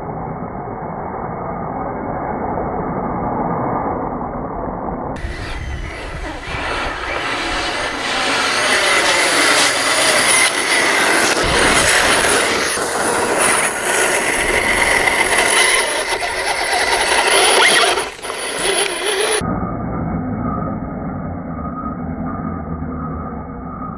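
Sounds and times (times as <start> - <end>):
toy truck motor whine: 5.2 - 19.4
tyres churning through wet mud: 5.2 - 19.4.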